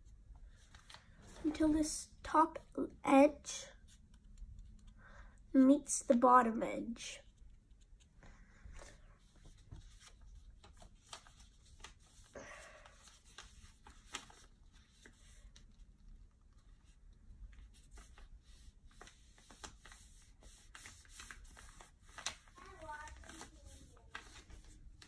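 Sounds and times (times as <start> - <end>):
paper rustling and crinkling: 0.5 - 1.8, 8.7 - 25.0
paper crackling under fingers: 8.8 - 12.3, 13.0 - 15.8, 16.8 - 25.0.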